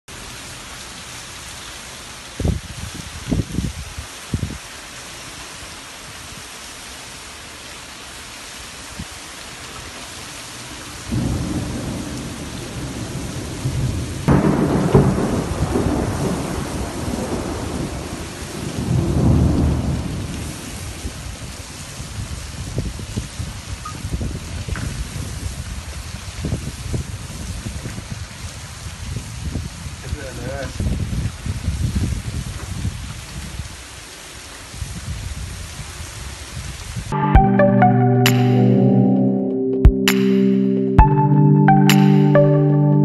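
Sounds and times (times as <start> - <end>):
steady rain hiss: 0.1 - 37.1
thunder rumbling: 11.1 - 21.0.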